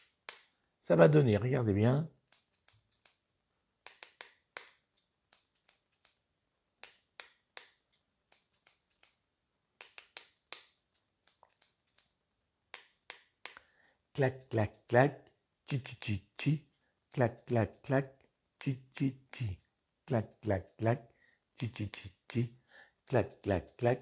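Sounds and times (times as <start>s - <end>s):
scissors tapping on pen: 3.8s - 6.2s.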